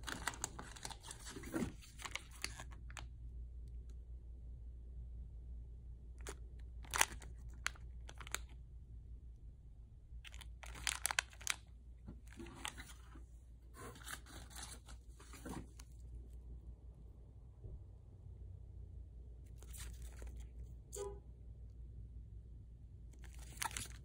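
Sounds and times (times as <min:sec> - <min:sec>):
plastic packets crinkling: 0:00.0 - 0:03.0, 0:06.2 - 0:08.5, 0:10.2 - 0:11.6, 0:19.6 - 0:20.5, 0:23.2 - 0:24.0.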